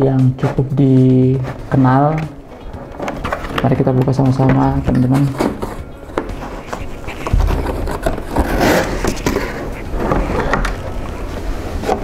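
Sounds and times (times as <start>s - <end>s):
cardboard sleeve scraping and rustling: 4.9s - 12.0s.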